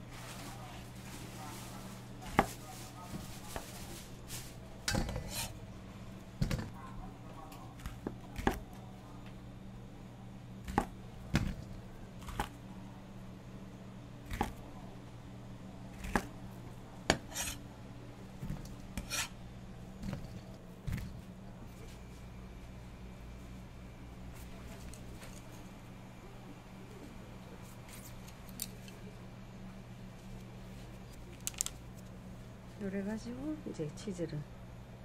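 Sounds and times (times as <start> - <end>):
steady low hum: 0.0 - 35.0
knife chopping on wooden board: 7.8 - 8.7, 10.6 - 12.5, 14.3 - 14.6, 16.0 - 16.3, 17.1 - 17.6, 18.4 - 19.3.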